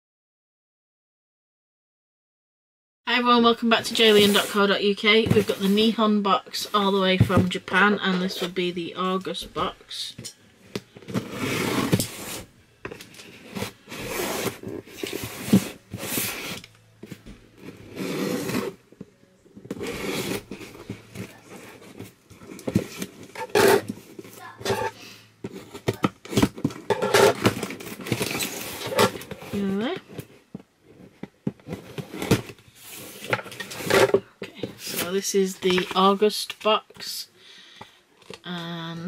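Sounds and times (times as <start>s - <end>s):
packaging scraping: 10.8s - 18.9s, 19.6s - 30.3s, 31.0s - 35.1s
cardboard box tearing: 11.1s - 12.5s, 13.3s - 16.6s, 17.8s - 18.8s, 19.7s - 24.9s, 25.6s - 29.7s.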